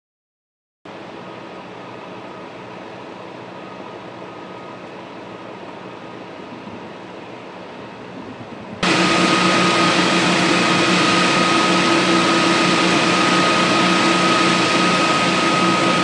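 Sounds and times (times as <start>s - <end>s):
fire equipment engine drone: 0.9s - 16.0s
steady high whine: 0.9s - 16.0s.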